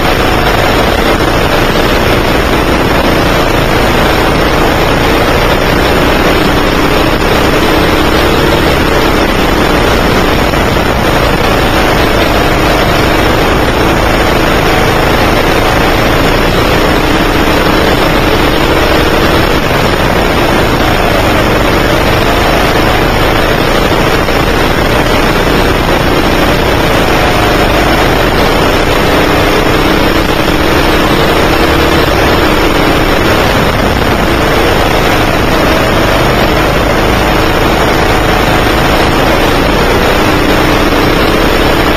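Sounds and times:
go-kart engine revving: 0.0s - 41.9s
steady rush of noise: 0.0s - 41.9s.

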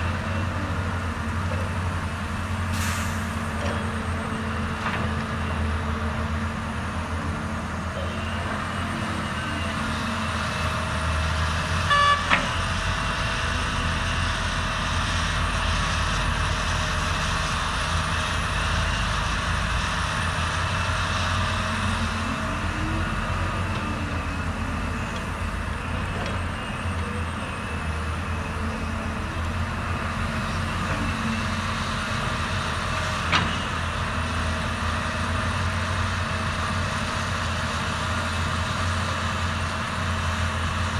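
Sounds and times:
heavy diesel engines running: 0.0s - 40.9s
short horn toot: 11.9s - 12.4s.

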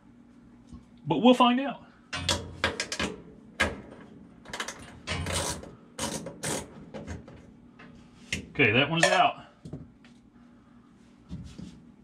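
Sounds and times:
screwdriver clicking and scraping metal: 4.6s - 6.7s.

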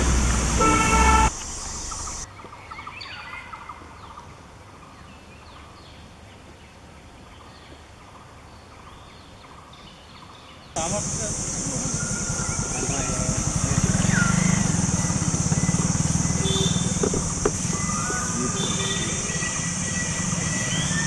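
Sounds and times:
vehicle engine and road noise: 0.0s - 2.3s, 10.8s - 21.0s
bird chirps: 10.8s - 21.0s.

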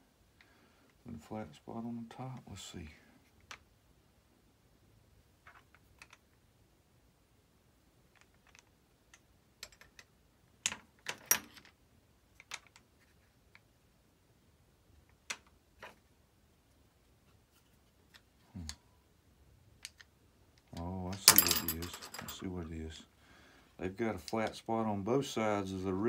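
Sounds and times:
small parts clicking and tapping: 5.4s - 6.4s, 8.1s - 13.7s, 15.0s - 16.1s, 19.7s - 22.5s.

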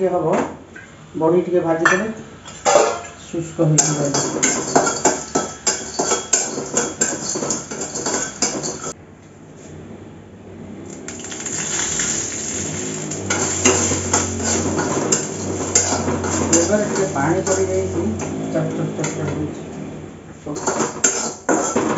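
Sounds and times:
ladle clinking and scraping in pan: 1.9s - 3.2s, 3.8s - 9.0s, 11.1s - 18.3s, 20.5s - 21.9s
frying sizzle: 3.8s - 9.0s, 10.9s - 19.0s, 20.5s - 21.9s.

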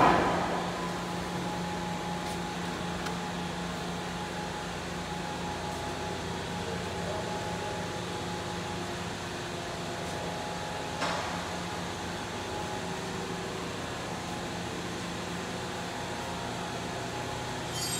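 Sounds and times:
high machine whine: 0.0s - 17.9s
machinery humming: 0.0s - 17.9s.

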